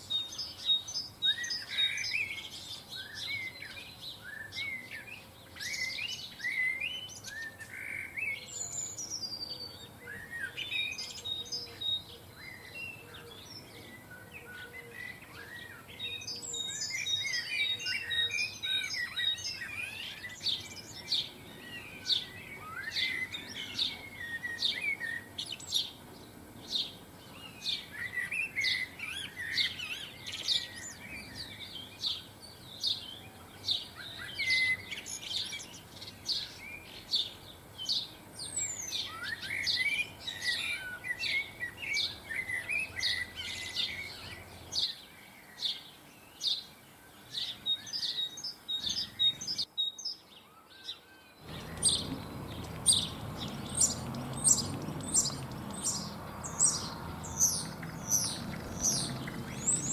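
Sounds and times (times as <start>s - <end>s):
rapid twittering birdsong: 0.0s - 59.9s
bird chirping sharply: 47.4s - 59.9s.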